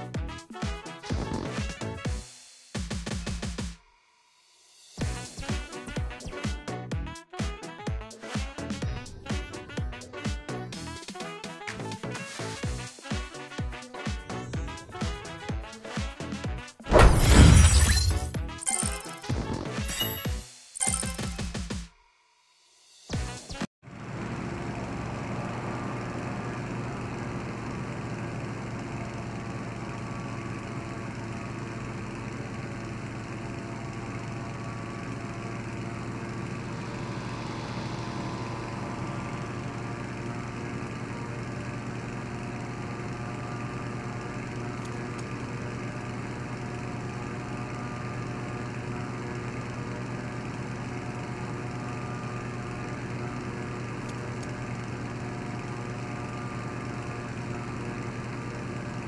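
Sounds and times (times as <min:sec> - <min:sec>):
motor droning: 0:28.5 - 0:58.6.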